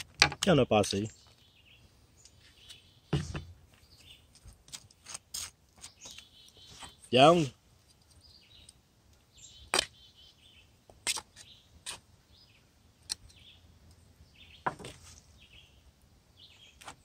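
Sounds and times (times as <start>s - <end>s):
faint bird chirps: 5.8s - 17.0s.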